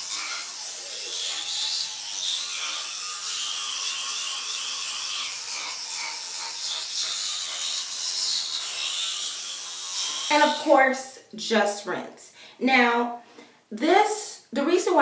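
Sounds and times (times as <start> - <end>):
bristles scrubbing teeth: 0.0 - 10.7
electric toothbrush buzzing: 0.0 - 10.8.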